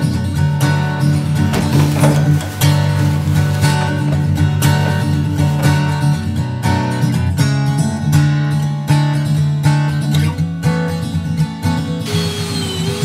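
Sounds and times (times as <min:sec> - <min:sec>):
strummed guitar music with beat: 0:00.0 - 0:13.0.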